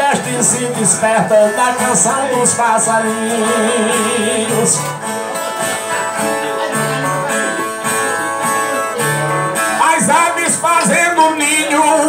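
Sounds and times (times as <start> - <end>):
man singing: 0.0 - 5.6, 9.6 - 12.0
plucked guitars playing: 0.0 - 12.0.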